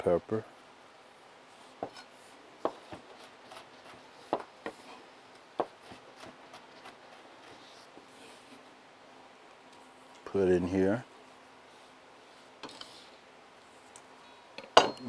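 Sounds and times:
knife chopping on cutting board: 1.8 - 4.8, 5.6 - 7.6.

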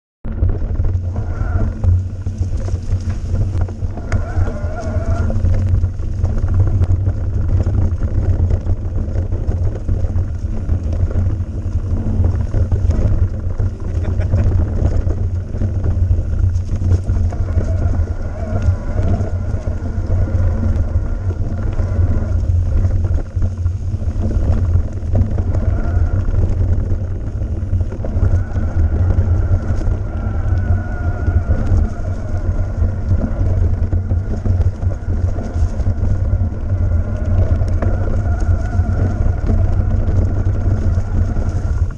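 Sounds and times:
wind and tyre rumble: 0.2 - 41.9.

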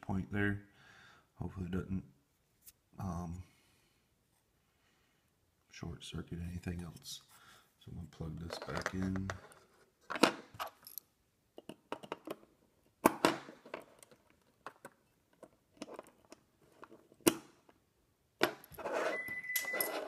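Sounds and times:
rustling and handling: 8.2 - 11.0, 18.4 - 20.0.

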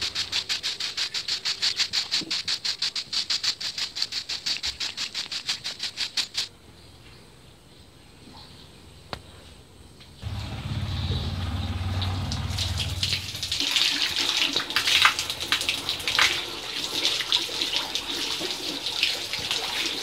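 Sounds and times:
broom sweeping dirt: 0.0 - 6.5.

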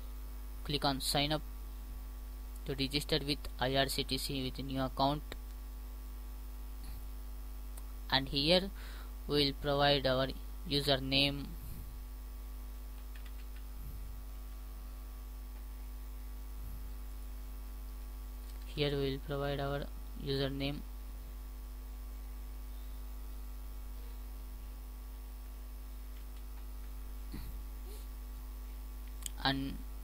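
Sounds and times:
electrical mains hum: 0.0 - 30.0
man speaking: 0.7 - 1.4, 2.6 - 5.4, 8.1 - 11.8, 18.7 - 20.9, 29.3 - 29.8.

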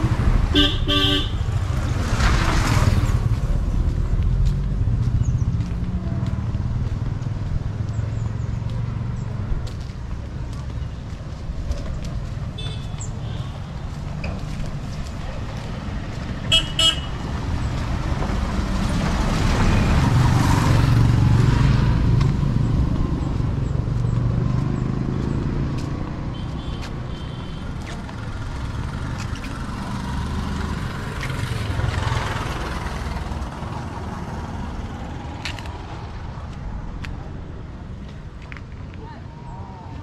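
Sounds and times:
vehicle engine passing: 14.1 - 26.5, 27.7 - 37.5.

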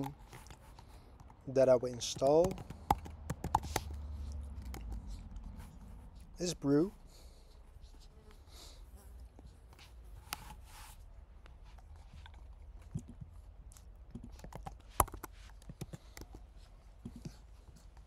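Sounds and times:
computer keys clicking: 2.0 - 4.0.

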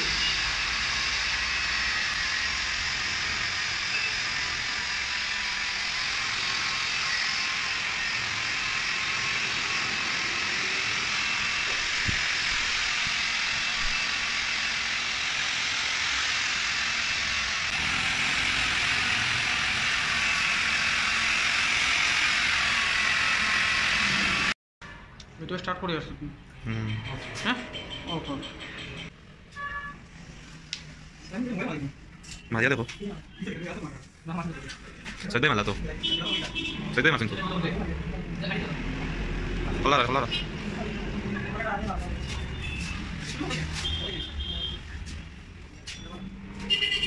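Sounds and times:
electric polisher motor whine: 0.0 - 24.6.

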